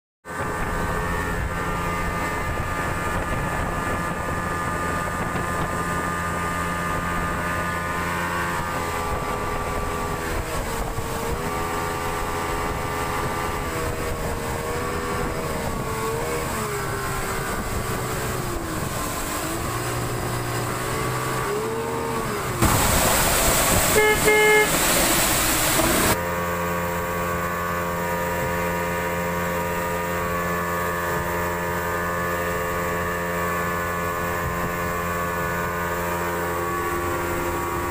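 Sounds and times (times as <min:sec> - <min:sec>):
outboard motor running: 0:00.2 - 0:37.9
loud rushing noise: 0:22.6 - 0:26.2.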